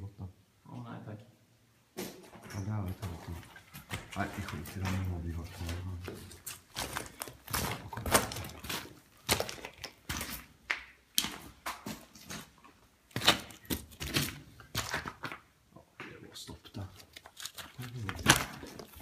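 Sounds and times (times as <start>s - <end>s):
footsteps on loose rock: 3.1s - 15.4s.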